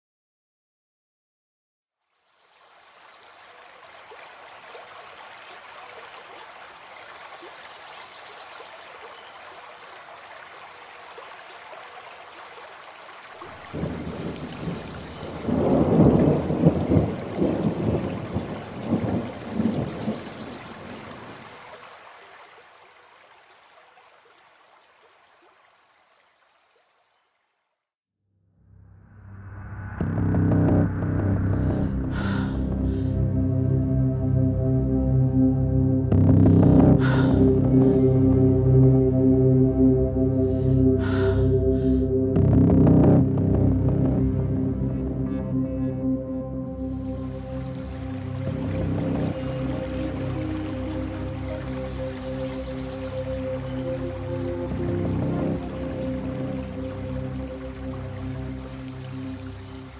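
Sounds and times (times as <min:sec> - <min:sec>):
running water rushing: 0:02.1 - 0:27.7, 0:31.6 - 0:33.2, 0:36.1 - 0:59.9
low steady hum: 0:28.8 - 0:59.9.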